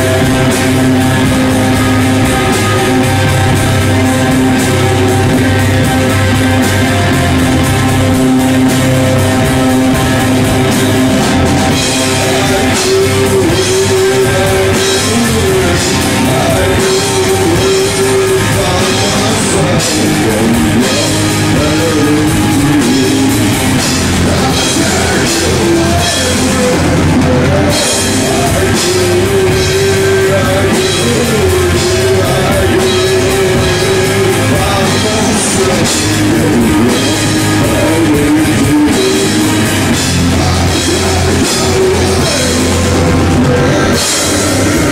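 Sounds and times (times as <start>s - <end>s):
rock band playing live: 0.0s - 44.9s.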